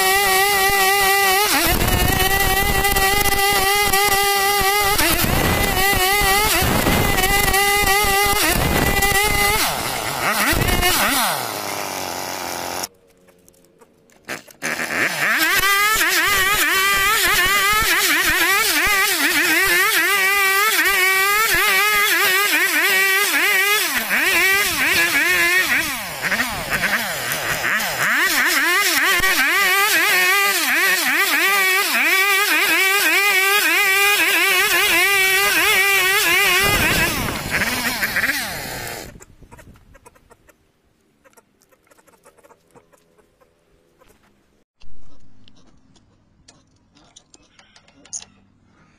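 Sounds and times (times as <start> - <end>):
chainsaw cutting log: 0.0 - 12.9, 14.3 - 39.2.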